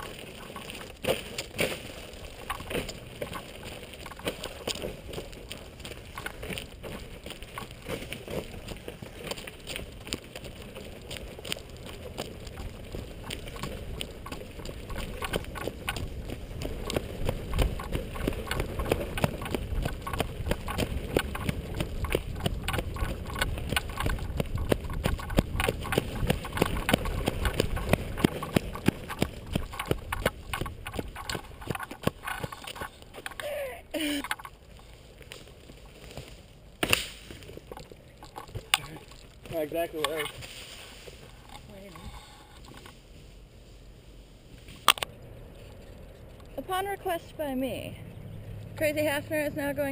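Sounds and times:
board wheels rolling on pavement: 0.0s - 49.9s
stick striking the ground: 36.8s - 37.4s.

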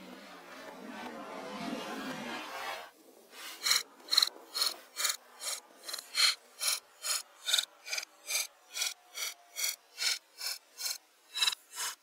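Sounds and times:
rasp on wood strokes: 3.3s - 12.0s.

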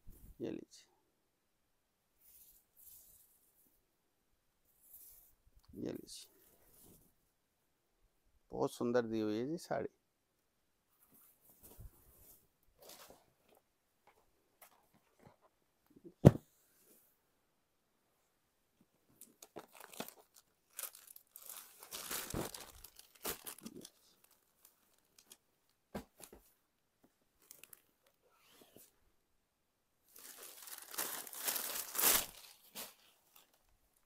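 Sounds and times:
fabric rustling and crinkling: 19.1s - 26.6s, 27.3s - 28.9s, 30.1s - 33.8s.

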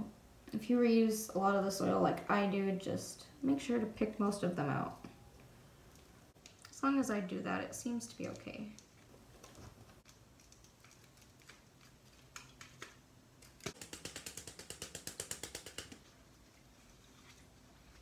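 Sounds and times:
rapid even clicking: 12.4s - 16.0s.

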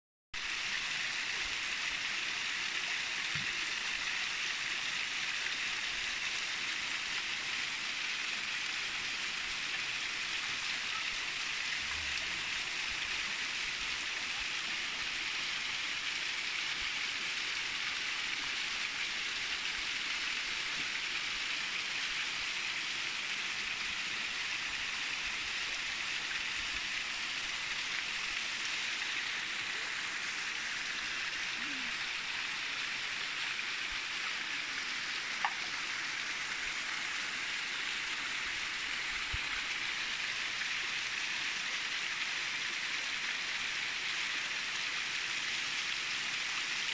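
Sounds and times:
small waterfall splashing: 0.4s - 46.9s.

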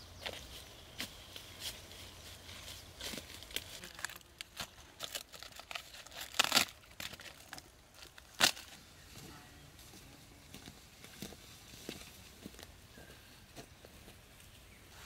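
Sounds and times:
dry bark crackling and tearing: 2.9s - 8.9s.

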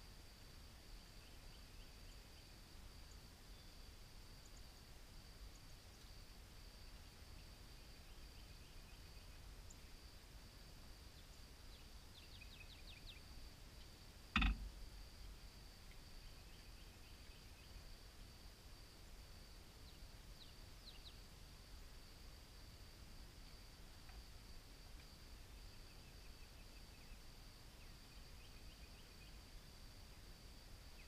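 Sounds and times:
faint bird chirps: 1.0s - 4.8s, 6.9s - 10.1s, 11.1s - 14.8s, 15.8s - 17.9s, 25.3s - 30.3s
sharp knock: 14.4s - 14.7s.

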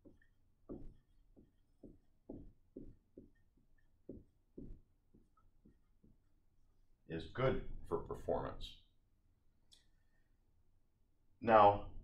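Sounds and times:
marker writing on whiteboard: 0.0s - 6.6s.

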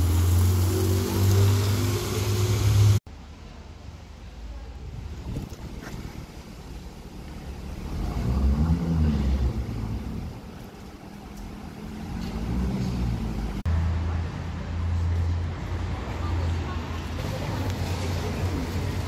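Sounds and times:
car engine revving: 7.5s - 10.4s.

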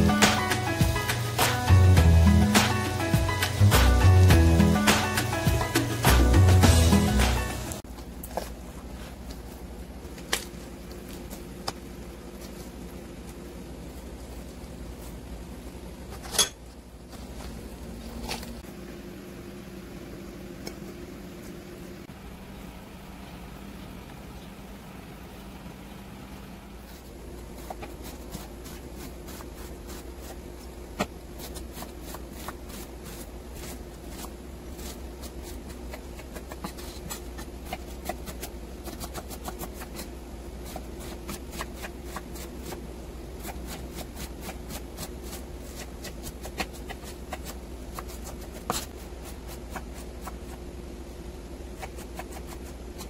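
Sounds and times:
steady low hum: 0.0s - 53.0s.

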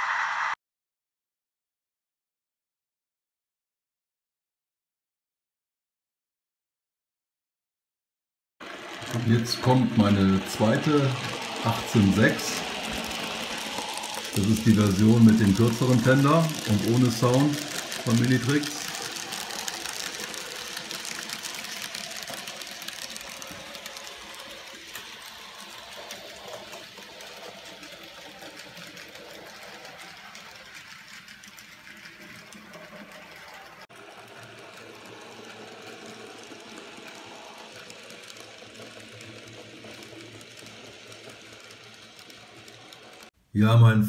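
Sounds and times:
model train motor whirring: 8.6s - 43.4s
wheels rattling on rails: 8.6s - 43.4s.

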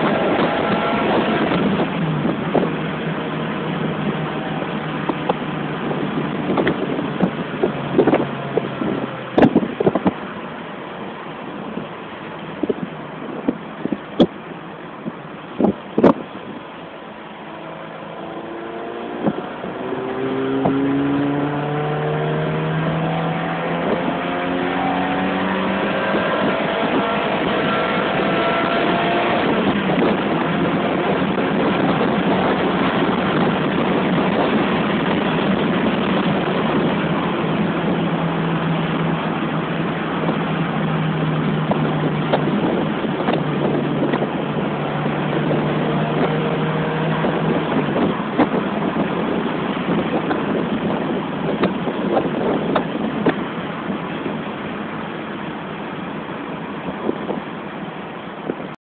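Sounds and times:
car engine accelerating: 0.0s - 58.8s
wind and road noise: 0.0s - 58.8s.

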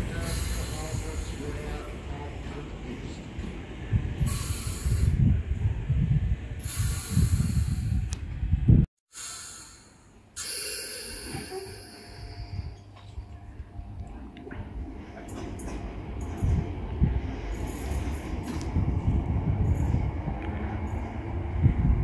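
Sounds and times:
compressed air hissing: 0.0s - 1.7s, 4.2s - 5.3s, 6.6s - 8.1s, 9.1s - 12.7s
low uneven rumble: 11.4s - 22.0s.

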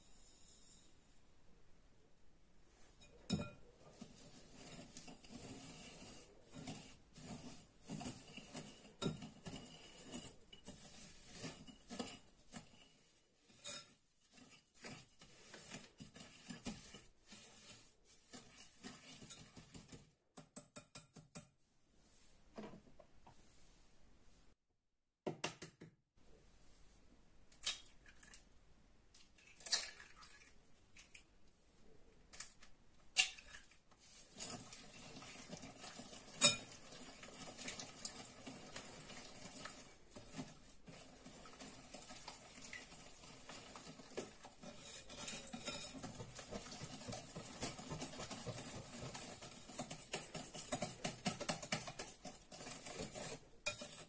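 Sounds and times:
whisk scraping glass bowl: 2.9s - 20.1s, 34.0s - 54.0s.

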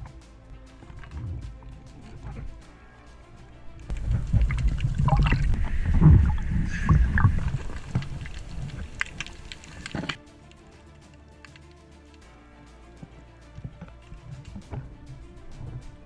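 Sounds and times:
sea water splashing: 0.0s - 10.2s
low rumble of water: 0.8s - 10.2s
wind buffeting microphone: 1.0s - 10.2s.

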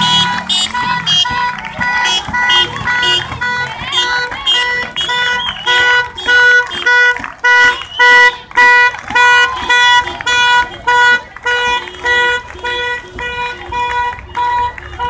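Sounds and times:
horn honking in short blasts: 0.0s - 15.0s.

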